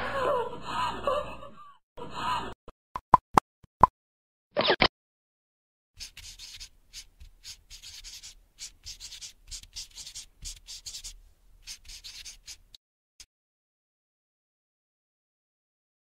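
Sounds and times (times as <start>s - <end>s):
marker scratching on paper: 6.0s - 12.8s.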